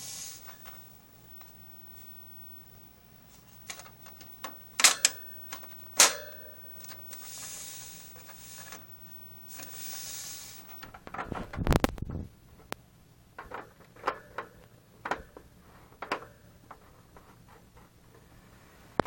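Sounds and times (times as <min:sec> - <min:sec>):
hissy rubbing: 0:00.0 - 0:01.0, 0:07.1 - 0:10.9.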